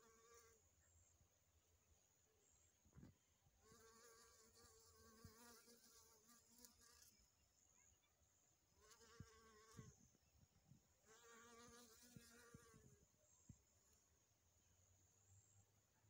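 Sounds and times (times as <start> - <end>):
honeybee buzzing in flight: 3.6 - 7.2, 8.8 - 10.0, 11.1 - 13.0.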